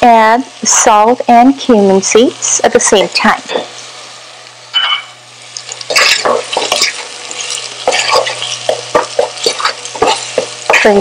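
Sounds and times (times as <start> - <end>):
onions sizzling in hot oil: 0.0 - 11.0
wooden spoon stirring: 5.6 - 11.0.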